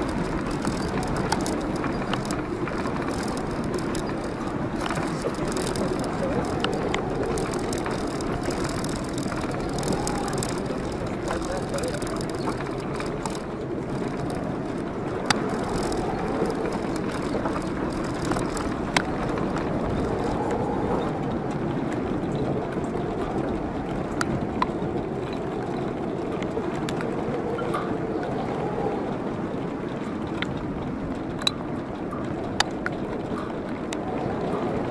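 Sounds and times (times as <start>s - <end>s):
sharp clicks and knocks: 0.0s - 19.5s
tyres on gravel: 0.0s - 25.0s
car engine driving slowly: 0.0s - 34.9s.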